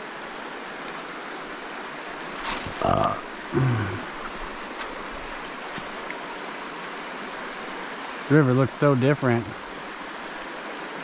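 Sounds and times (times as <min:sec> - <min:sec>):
water rushing over rocks: 0:00.0 - 0:11.0
short vocal sounds: 0:02.7 - 0:04.1.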